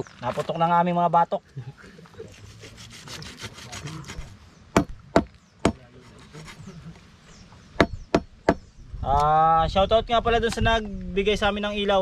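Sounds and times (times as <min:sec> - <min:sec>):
knife scraping meat: 0:02.3 - 0:04.3.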